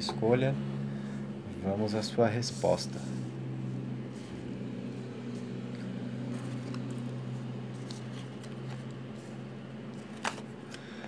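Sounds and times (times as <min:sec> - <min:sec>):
steady low hum: 0:00.0 - 0:11.0
cards ticking and rustling: 0:05.8 - 0:09.0.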